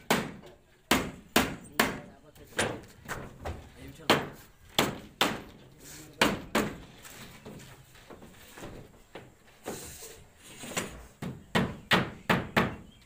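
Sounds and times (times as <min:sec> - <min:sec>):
hammer knocking on wood: 0:00.0 - 0:05.6, 0:06.2 - 0:06.9, 0:11.2 - 0:12.9.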